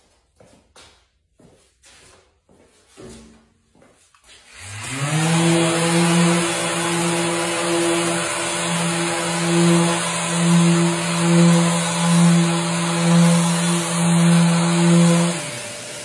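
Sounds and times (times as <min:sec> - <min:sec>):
orbital sander on wood: 0:04.4 - 0:16.0.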